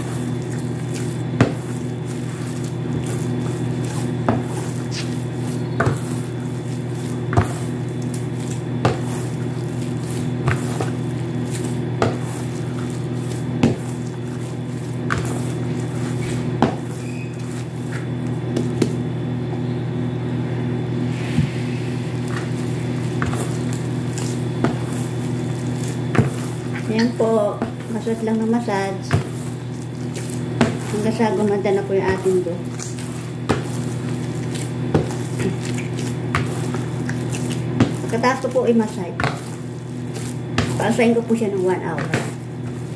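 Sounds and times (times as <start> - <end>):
dough knocking against bowl: 0.0 - 19.0, 28.9 - 38.3, 38.9 - 41.0
dough squishing: 0.0 - 42.9
steady low hum: 0.0 - 42.9.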